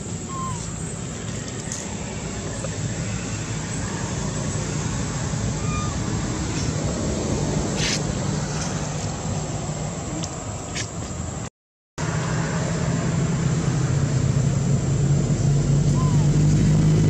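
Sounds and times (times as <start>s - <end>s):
low rumble with hiss: 0.0s - 11.4s.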